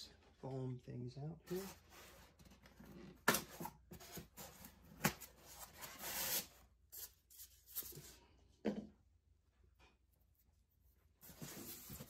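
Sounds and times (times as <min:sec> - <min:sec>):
foam packaging rubbing and scraping: 0:03.9 - 0:08.0.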